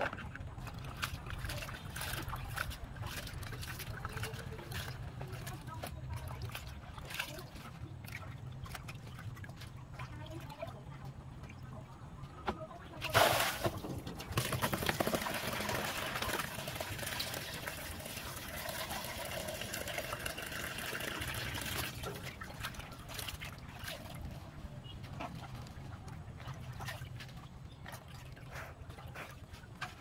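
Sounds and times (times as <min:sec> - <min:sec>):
splashing and dripping: 0:00.2 - 0:12.1, 0:13.0 - 0:30.0
water pouring into basin: 0:14.4 - 0:24.2.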